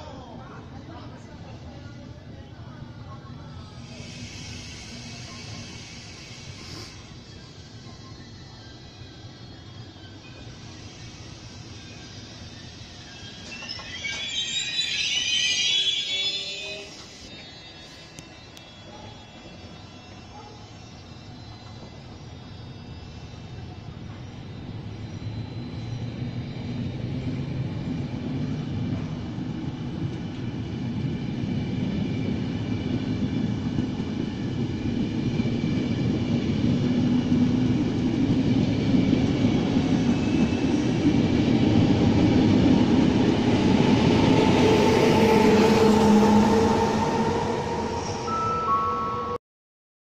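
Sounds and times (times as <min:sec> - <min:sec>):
electric locomotive whine: 0:00.0 - 0:49.4
train coaches rolling past: 0:00.0 - 0:49.4.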